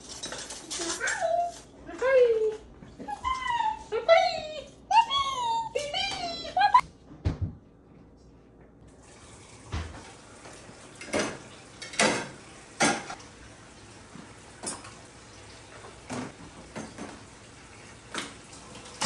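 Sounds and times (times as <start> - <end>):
dishes clinking: 11.0 - 13.2, 14.6 - 15.0, 16.1 - 17.2.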